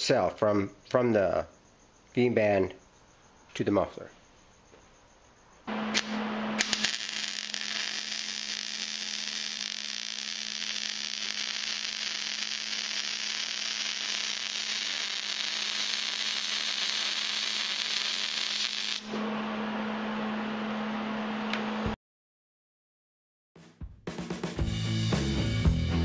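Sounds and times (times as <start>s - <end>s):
welding arc crackling: 5.7s - 19.1s.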